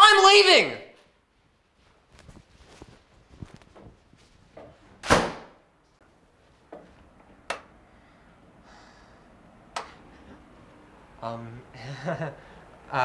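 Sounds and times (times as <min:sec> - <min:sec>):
door slamming: 0:05.0 - 0:05.6.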